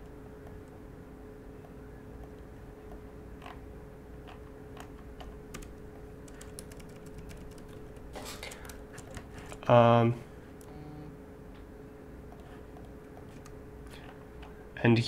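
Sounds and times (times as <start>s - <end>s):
faint steady hum: 0.0s - 15.0s
keyboard keys clicking: 4.3s - 9.6s, 12.3s - 13.6s.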